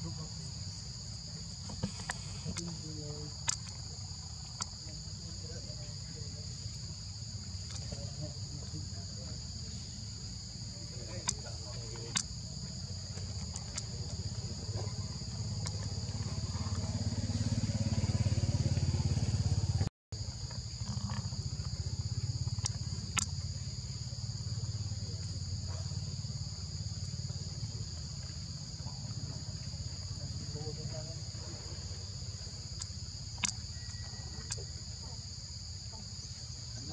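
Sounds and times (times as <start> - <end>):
high-pitched insect chorus: 0.0 - 36.9
sharp clicks: 3.4 - 3.8, 11.1 - 12.3, 22.5 - 23.4, 32.8 - 33.7.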